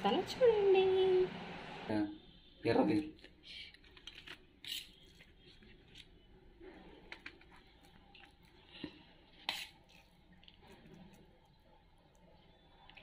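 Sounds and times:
spoon scraping a steel plate: 4.6 - 5.1.

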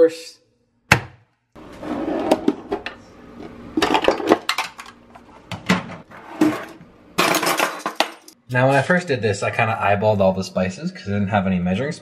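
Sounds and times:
cutlery clattering in drawer: 3.8 - 5.0, 5.7 - 8.4.

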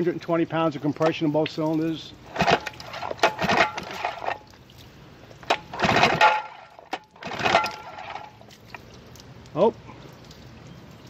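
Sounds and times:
electric starter cranking engine: 5.7 - 6.3, 7.2 - 8.2.

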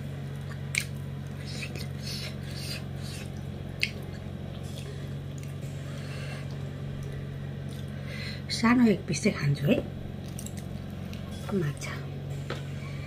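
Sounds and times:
steady low hum: 0.0 - 13.0
wet squishing of eating by hand: 0.2 - 5.8, 6.4 - 8.0, 10.1 - 11.5.

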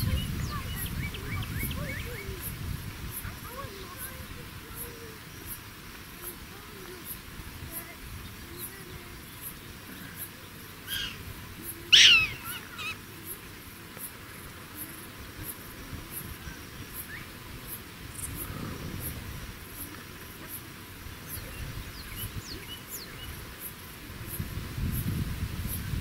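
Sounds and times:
prairie dog barking: 10.9 - 11.2, 11.9 - 13.0.

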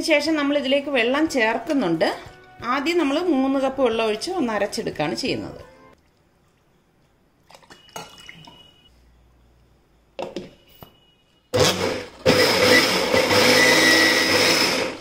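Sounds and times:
electric mixer grinder running: 11.6 - 15.0.

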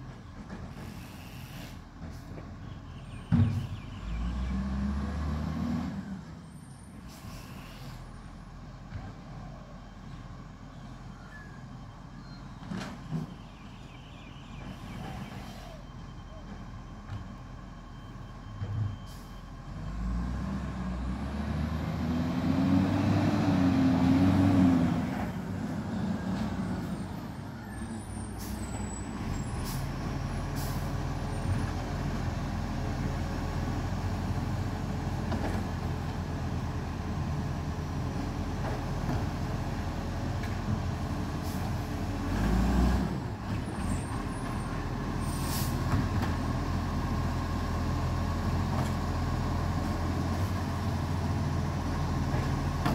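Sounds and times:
garbage truck diesel engine revving: 4.0 - 6.3, 19.7 - 52.9.

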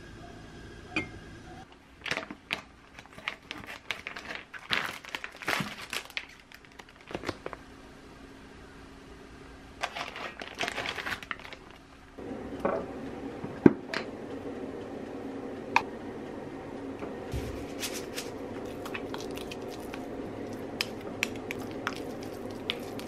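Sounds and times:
plastic packaging crinkling: 2.0 - 7.6, 9.8 - 11.9, 17.7 - 23.0.

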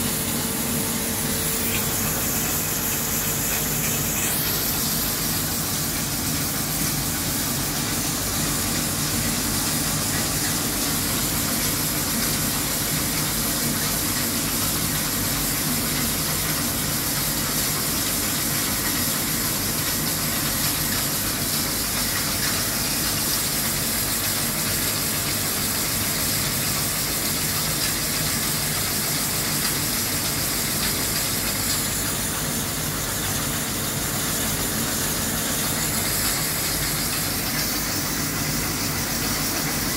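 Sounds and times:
coolant spray hissing: 0.0 - 39.9.

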